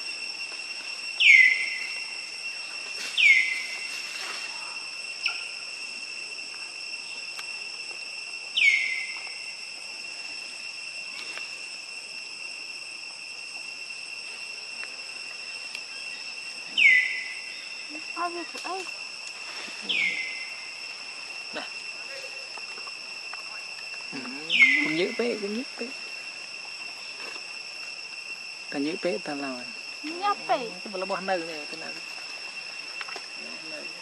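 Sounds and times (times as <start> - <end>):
insects droning: 0.0 - 34.0
whistled call sliding down: 1.2 - 2.0, 3.0 - 4.6, 8.5 - 9.4, 15.5 - 17.7, 19.4 - 21.0.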